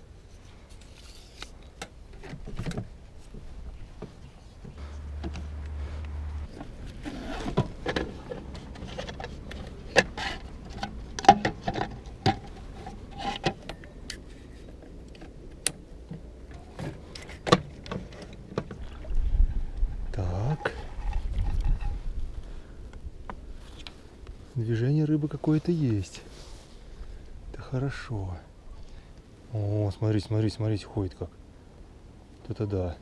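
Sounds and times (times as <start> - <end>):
plastic buckets being moved: 6.5 - 13.8.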